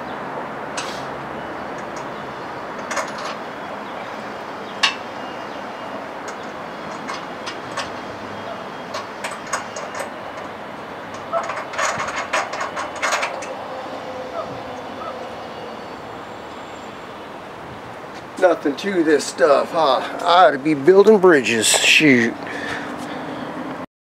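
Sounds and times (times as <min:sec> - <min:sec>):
background hiss: 0:00.8 - 0:01.3.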